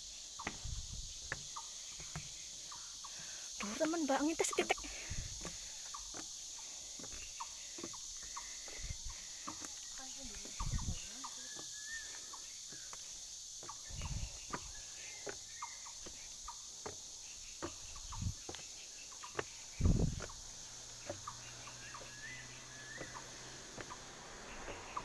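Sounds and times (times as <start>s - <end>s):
footsteps on outdoor staircase: 0.0s - 25.0s
high insect drone: 0.0s - 25.0s
heavy low thumps: 19.8s - 20.3s.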